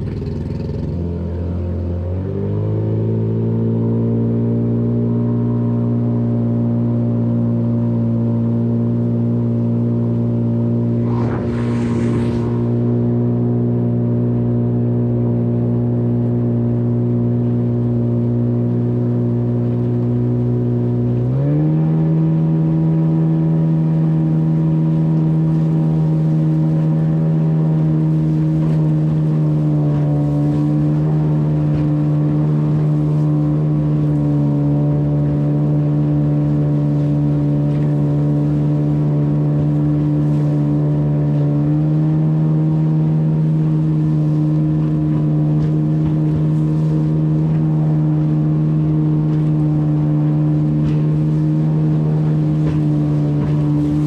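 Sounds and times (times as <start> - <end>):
engine running: 0.0 - 54.0
brief rushing noise: 10.8 - 14.0.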